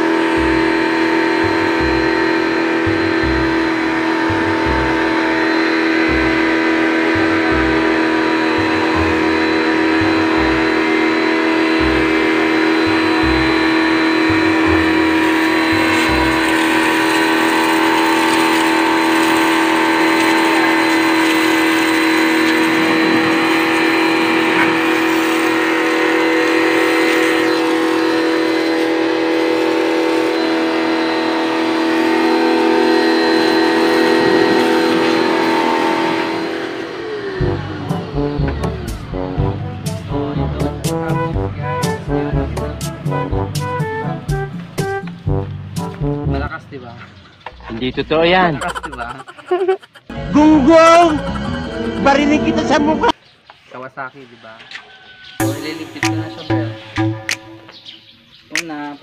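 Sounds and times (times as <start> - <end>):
pressure washer motor whining: 0.0 - 40.3, 48.2 - 53.2, 55.4 - 57.7
water jet spraying: 12.8 - 30.6.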